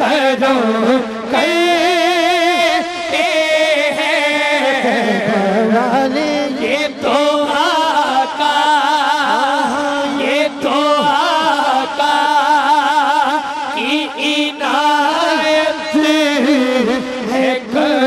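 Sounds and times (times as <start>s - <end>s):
man singing melismatic notes: 0.0s - 18.0s.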